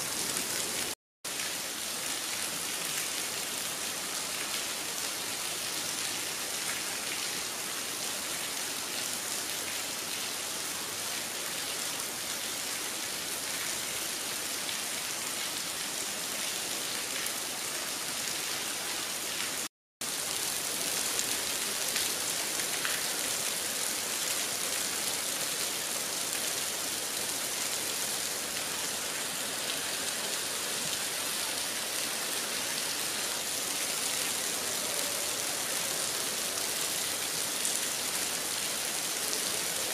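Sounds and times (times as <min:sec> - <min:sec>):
heavy rain: 0:00.0 - 0:39.9.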